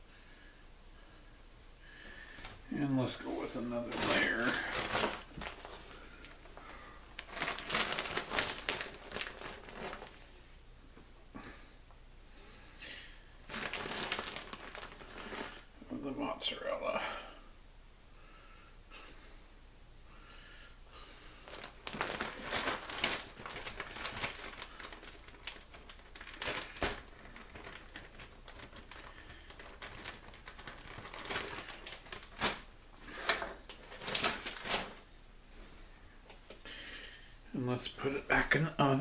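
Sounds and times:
plastic bag crinkling: 2.4s - 10.3s, 13.4s - 15.7s, 21.4s - 35.1s.

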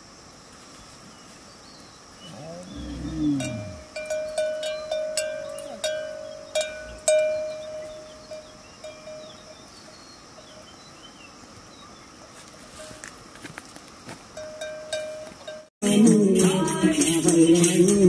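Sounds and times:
faint birds chirping: 0.4s - 13.3s
cow bell clanking: 3.1s - 9.6s, 14.4s - 18.0s.

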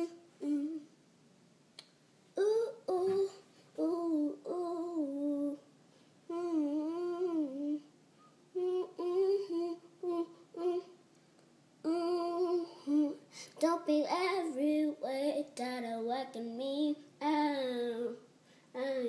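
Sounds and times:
woman humming: 0.0s - 0.9s, 6.3s - 7.9s, 8.5s - 11.0s, 11.8s - 13.2s.

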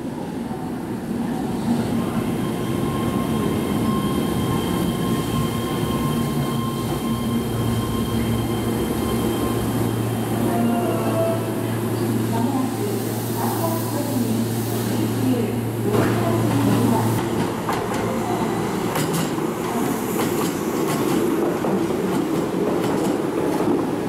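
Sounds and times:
train wheels rumbling on rail: 11.1s - 24.0s.

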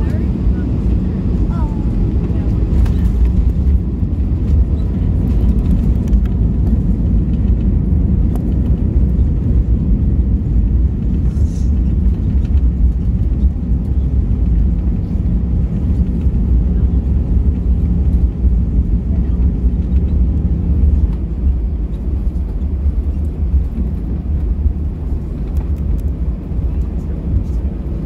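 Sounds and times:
aircraft cabin engine rumble: 0.0s - 28.0s.

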